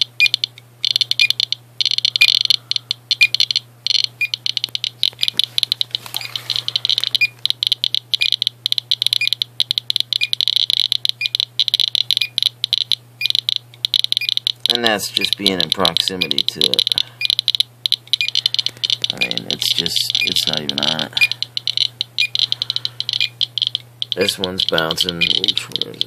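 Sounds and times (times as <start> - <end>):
faint steady hum: 0.0 - 26.0
geiger counters clicking: 0.0 - 26.0.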